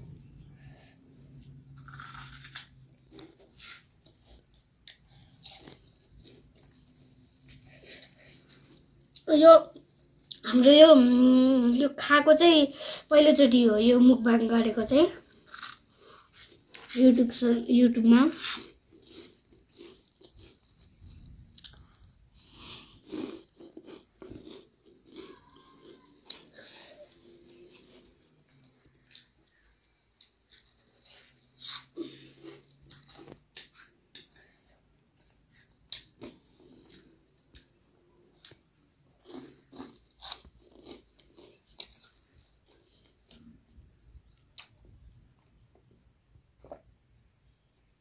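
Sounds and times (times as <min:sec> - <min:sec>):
steady high-pitched hiss: 0:00.0 - 0:25.0, 0:26.1 - 0:48.0
snack crunching: 0:01.7 - 0:06.7, 0:15.3 - 0:16.9, 0:18.3 - 0:28.1, 0:30.2 - 0:34.5, 0:38.4 - 0:43.5.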